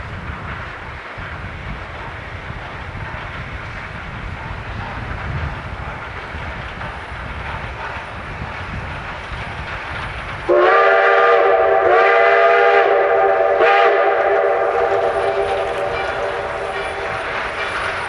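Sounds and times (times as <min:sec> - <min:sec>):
faint low rumble of train: 0:00.0 - 0:18.0
steam locomotive chime whistle: 0:10.5 - 0:18.0.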